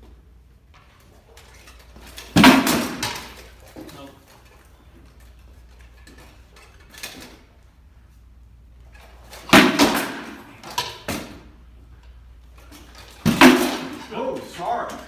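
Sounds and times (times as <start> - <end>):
swords striking shields and armour: 2.3 - 3.4, 9.4 - 11.4, 13.2 - 14.8.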